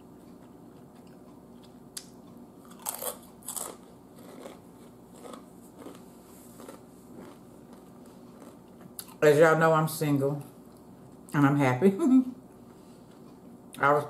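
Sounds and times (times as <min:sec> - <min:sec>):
potato chip crunching: 0:01.0 - 0:09.2.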